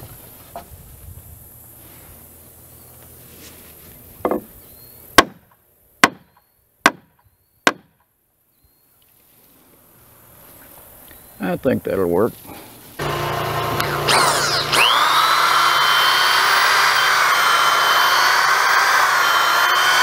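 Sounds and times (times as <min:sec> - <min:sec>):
hammer striking wood: 0:04.2 - 0:04.5, 0:05.2 - 0:06.3, 0:06.9 - 0:07.9.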